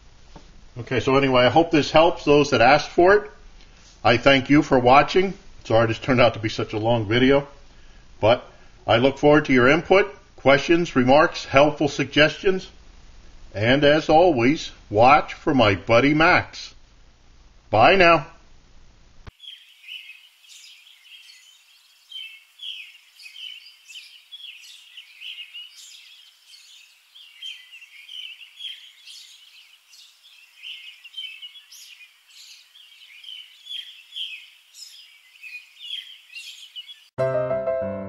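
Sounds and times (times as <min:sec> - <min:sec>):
small birds chirping: 0:19.3 - 0:37.2.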